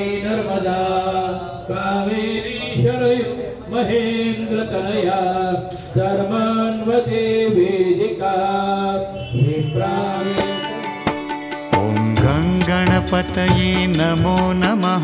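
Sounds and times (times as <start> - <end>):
drum strokes: 10.2 - 15.0.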